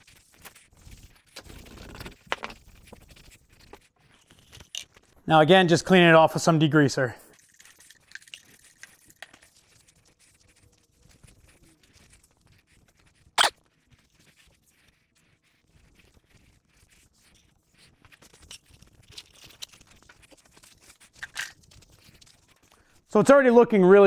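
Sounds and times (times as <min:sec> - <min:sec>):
paper towel wiping metal: 0:09.5 - 0:19.1.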